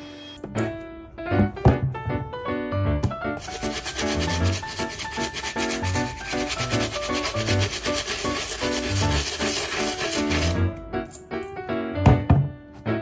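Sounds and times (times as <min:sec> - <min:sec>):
soft background music: 0:00.0 - 0:13.0
brush scrubbing a sneaker: 0:03.4 - 0:10.6.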